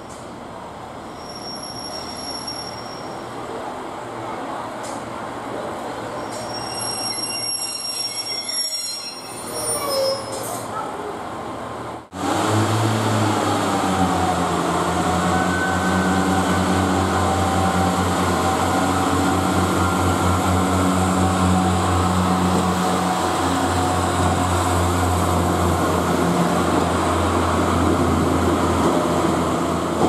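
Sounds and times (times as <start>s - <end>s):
diesel train engine droning: 11.8s - 30.0s.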